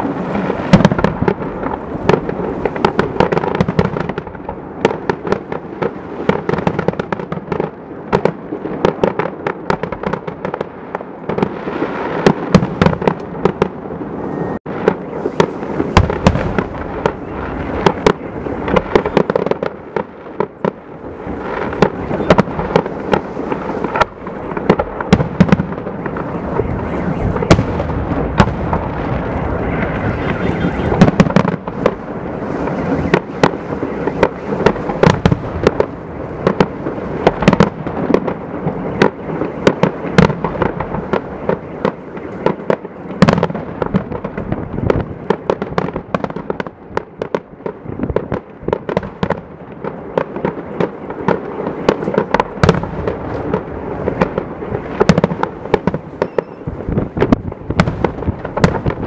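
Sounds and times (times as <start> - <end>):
continuous rumble: 12.6 - 59.0
firework shells bursting: 51.7 - 59.0.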